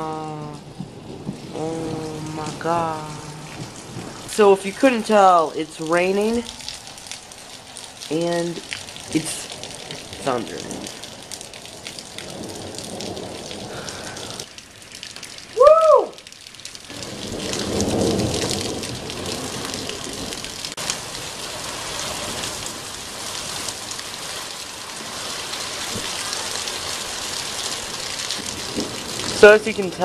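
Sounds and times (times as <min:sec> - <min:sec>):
low rumble of thunder: 0:00.0 - 0:07.1, 0:08.6 - 0:14.5, 0:16.9 - 0:30.0
steady rain falling: 0:00.0 - 0:30.0.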